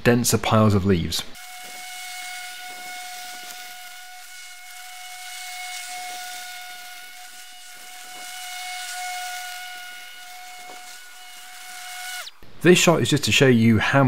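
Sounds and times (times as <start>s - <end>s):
rushing hiss of mown leaves: 1.4s - 12.3s
battery lawnmower whining: 1.4s - 12.4s.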